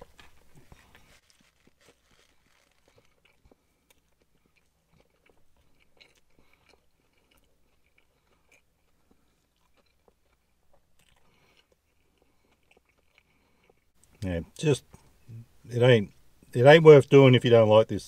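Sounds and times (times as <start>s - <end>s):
person chewing food: 0.0s - 14.2s.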